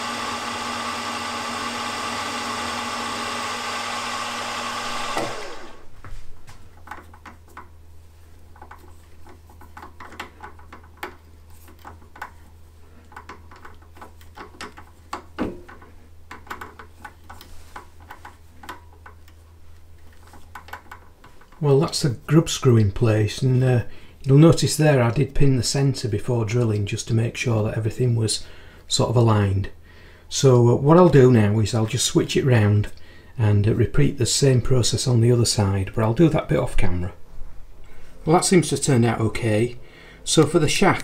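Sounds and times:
milling machine motor running: 0:00.0 - 0:05.9.

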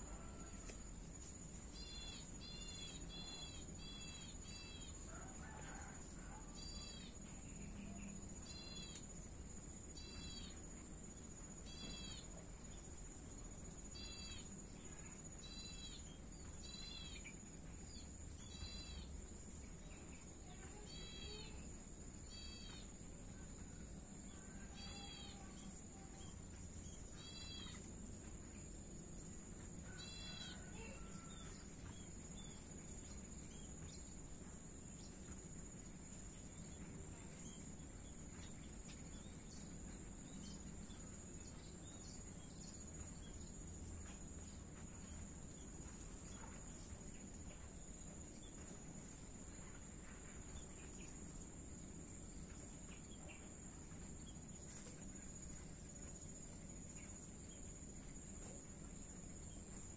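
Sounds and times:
crickets trilling: 0:00.0 - 0:59.9.

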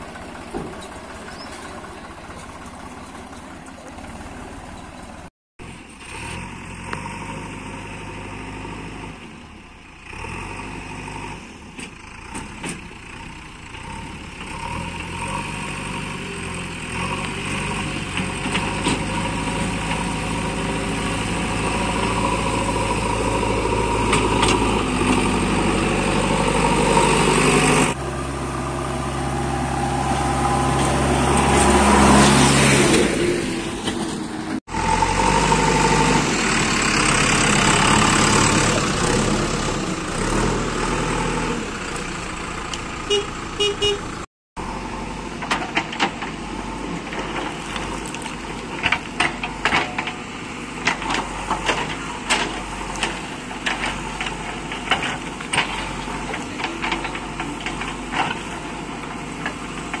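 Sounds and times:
diesel engine running: 0:00.0 - 1:00.0.

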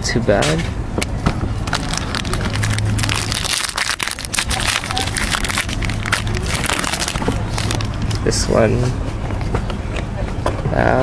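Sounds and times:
foil wrapper crinkling: 0:01.7 - 0:08.1.

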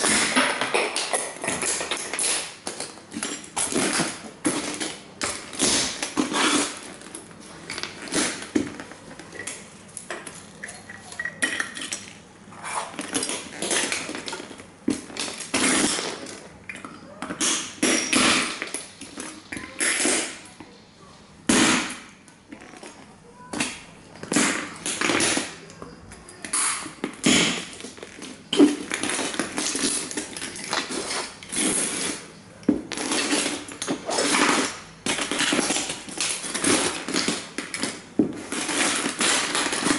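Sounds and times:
plastic crunching: 0:00.0 - 0:20.5, 0:21.5 - 0:39.9
boots stomping on plastic toys: 0:13.1 - 0:16.4, 0:32.6 - 0:39.9.

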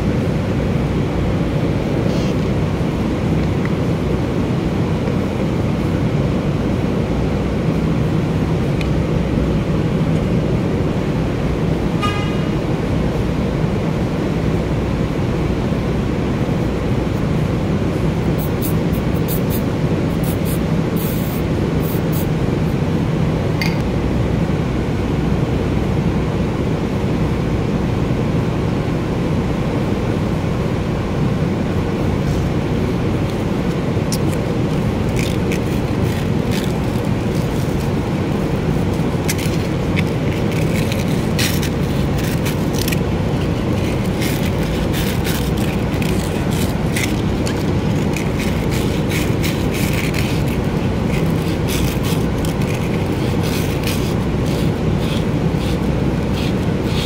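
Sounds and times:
low machine drone: 0:00.0 - 0:57.0.

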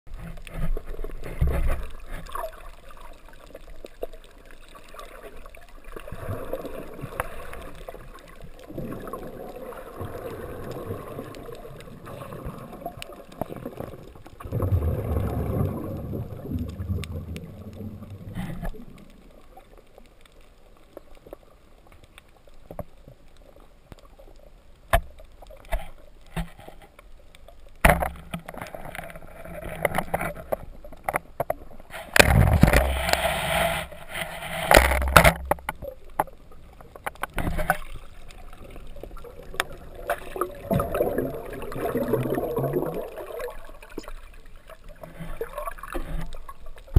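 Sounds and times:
underwater gurgling and rushing: 0:00.1 - 0:46.9
sharp knocks and clicks: 0:34.6 - 0:36.3.

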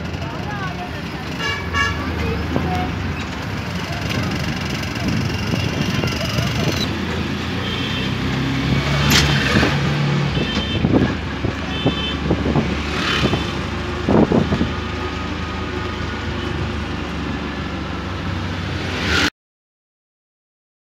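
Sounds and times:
engine hum of passing vehicles: 0:00.0 - 0:19.3.

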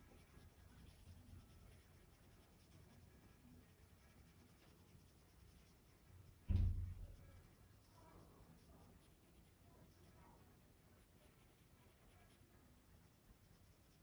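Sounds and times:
pencil scratching on paper: 0:00.0 - 0:14.0
low thump: 0:06.4 - 0:07.3.

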